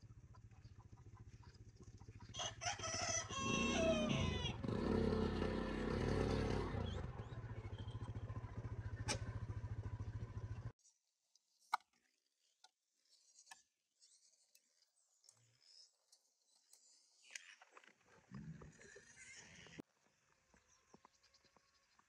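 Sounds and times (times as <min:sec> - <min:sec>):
rooster crowing: 0:02.4 - 0:05.2.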